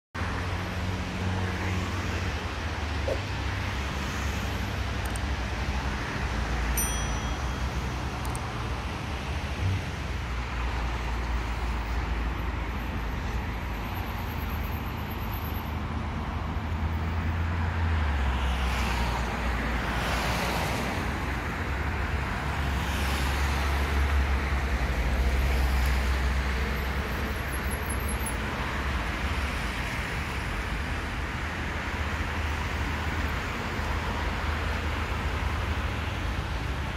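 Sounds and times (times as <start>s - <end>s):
cars swishing by: 0.2s - 36.9s
low traffic rumble: 0.2s - 36.9s.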